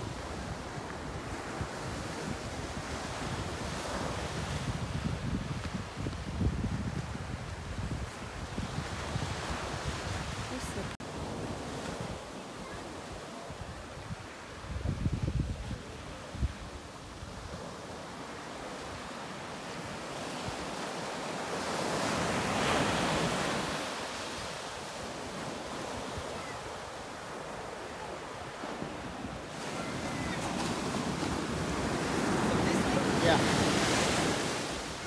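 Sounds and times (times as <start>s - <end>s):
ocean surf breaking on beach: 0.0s - 35.0s.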